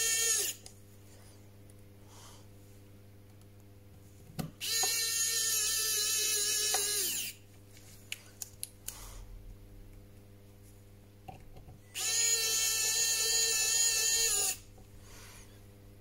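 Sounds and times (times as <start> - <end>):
electric screwdriver whining: 0.0 - 0.6, 4.6 - 7.4, 12.0 - 14.6.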